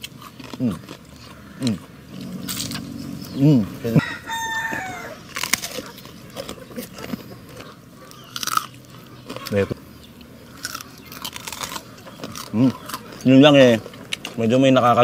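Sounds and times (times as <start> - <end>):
crunchy food chewing: 0.0 - 15.0
rooster crowing: 1.4 - 5.4
people groaning: 1.6 - 5.2.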